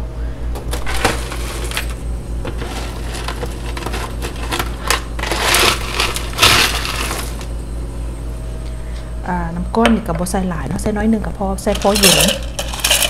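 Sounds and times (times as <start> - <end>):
ice cubes clattering: 0.8 - 7.5, 11.7 - 13.0
scraping rush of ice: 2.6 - 7.5.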